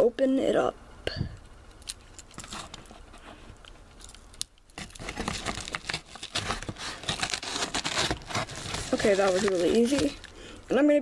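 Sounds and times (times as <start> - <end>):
paper crinkling and tearing: 1.9 - 10.4
knife cutting paper mailer: 4.8 - 10.2.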